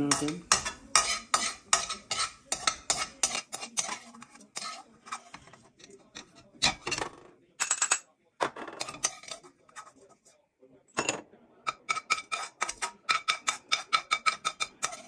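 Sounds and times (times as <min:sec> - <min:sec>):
metal spoon scraping frying pan: 0:00.0 - 0:06.9, 0:08.8 - 0:10.3, 0:11.7 - 0:15.0.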